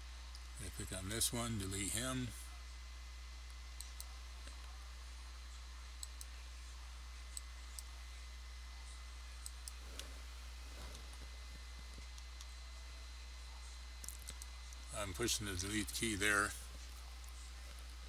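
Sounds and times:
steady low hum: 0.0s - 18.0s
computer mouse clicks: 3.8s - 4.7s, 6.0s - 6.3s, 14.0s - 14.8s.

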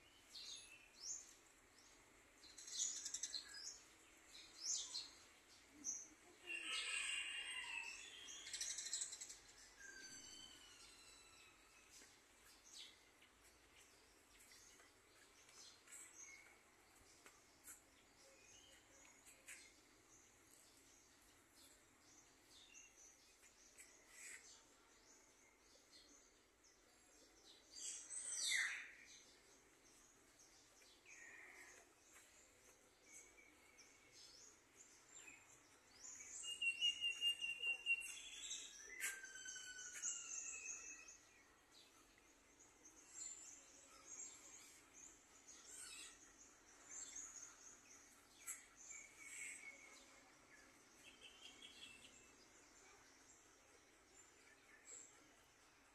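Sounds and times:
birds chirping: 0.0s - 55.9s
whistled bird calls: 36.4s - 38.4s.

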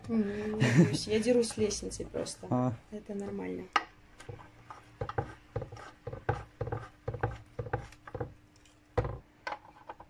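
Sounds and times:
faint steady hum: 0.0s - 10.0s.

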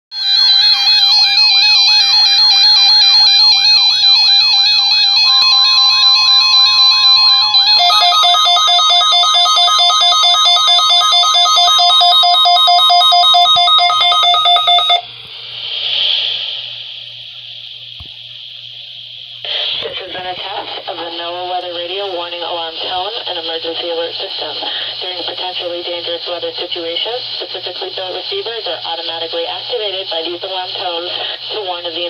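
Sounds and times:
steady warning alarm tone: 0.1s - 15.1s
pulsing beeps: 0.2s - 15.0s
warbling siren alarms: 0.2s - 15.1s.

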